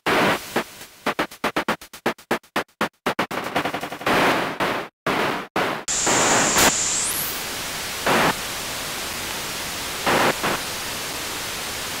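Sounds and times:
noise bursts: 0.0 - 12.0
high whistle sweeping up: 5.9 - 7.4
white noise hissing: 5.9 - 12.0.

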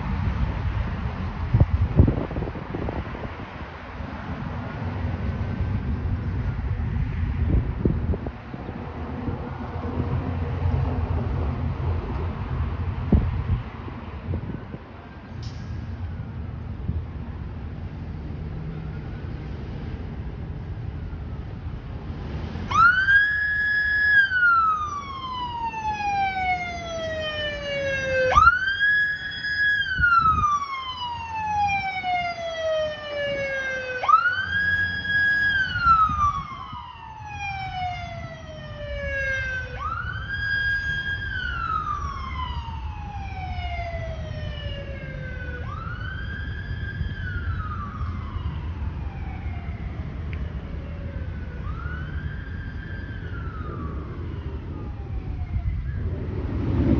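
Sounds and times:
siren wailing: 18.6 - 20.0, 22.7 - 56.9.

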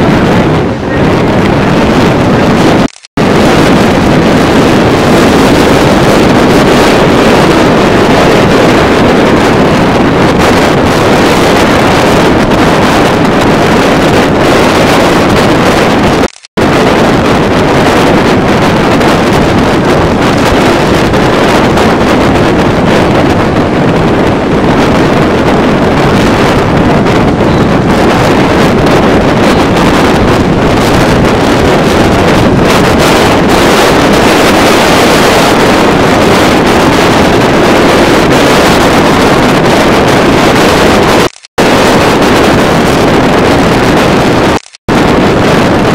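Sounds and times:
wind blasting microphone: 0.0 - 45.9.

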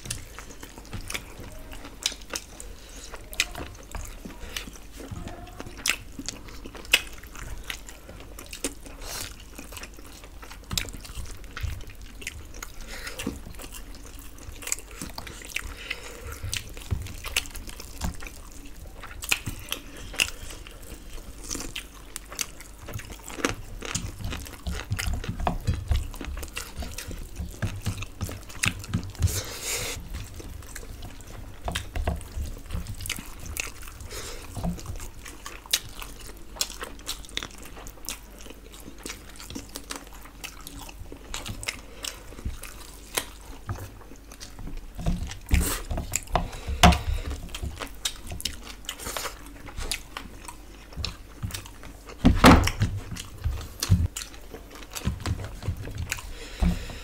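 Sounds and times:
close-up chewing and biting: 0.0 - 57.0
fingers working food on plates: 22.2 - 36.3, 41.4 - 50.2.

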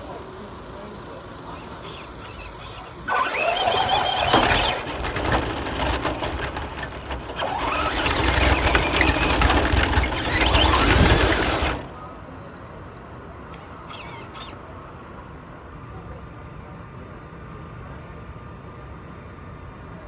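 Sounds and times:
toy car motor whining: 1.4 - 12.0, 13.5 - 14.7.

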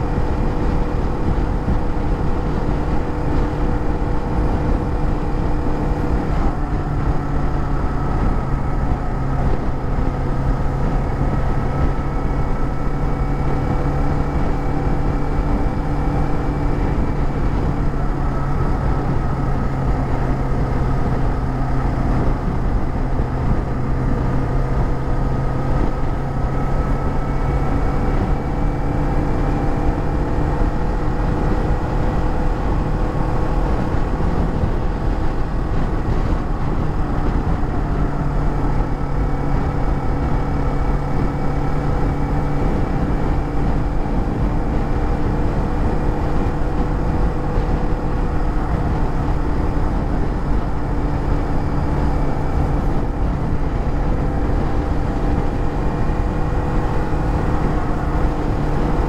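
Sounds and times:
motorcycle engine cruising: 0.0 - 59.0
wind rushing: 0.0 - 59.0.

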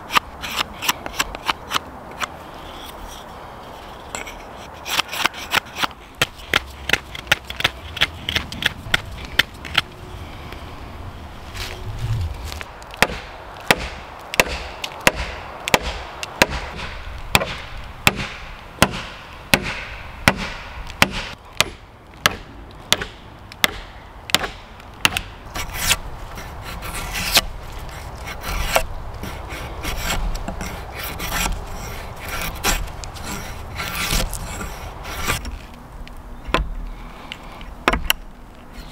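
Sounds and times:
knife scraping bark: 0.0 - 9.8, 25.5 - 35.7.

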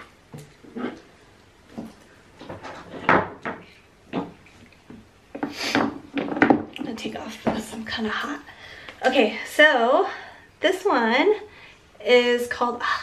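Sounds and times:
hard objects knocking and clunking: 1.7 - 6.8.

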